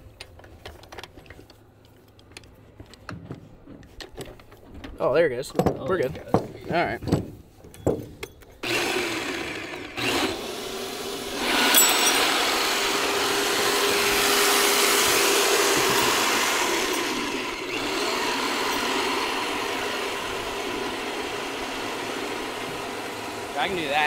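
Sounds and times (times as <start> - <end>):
winch motor running: 8.6 - 24.0.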